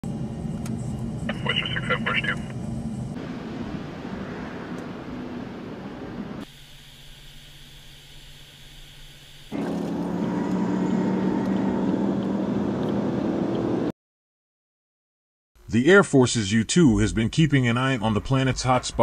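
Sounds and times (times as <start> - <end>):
jet aircraft engine noise: 0.1 - 7.2.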